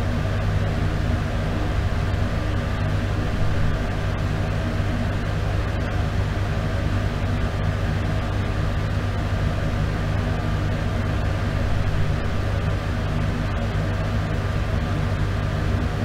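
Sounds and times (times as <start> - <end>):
exhaust fan humming: 0.0 - 16.0.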